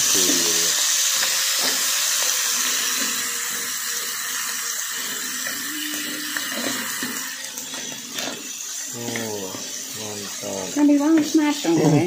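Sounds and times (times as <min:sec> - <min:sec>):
spice paste sizzling in hot oil: 0:00.0 - 0:12.0
metal spatula stirring in wok: 0:06.5 - 0:12.0.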